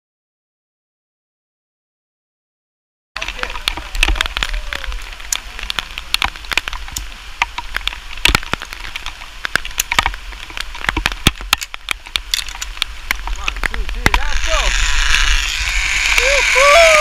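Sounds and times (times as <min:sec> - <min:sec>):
raindrops clicking: 0:03.2 - 0:14.3
rain hiss: 0:03.2 - 0:17.0.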